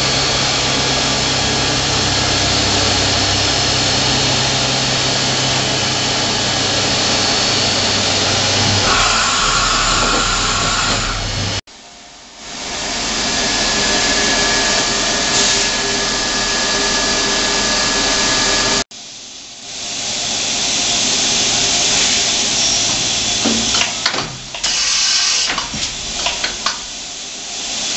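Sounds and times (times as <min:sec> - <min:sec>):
machining center hissing: 0:00.0 - 0:11.6, 0:20.2 - 0:27.9
sharp clicks and knocks: 0:22.9 - 0:24.8, 0:25.4 - 0:26.9.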